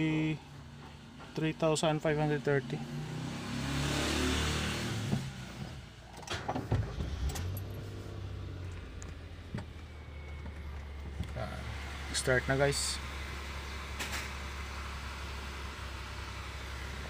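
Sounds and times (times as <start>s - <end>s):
car engine idling: 5.4s - 17.0s.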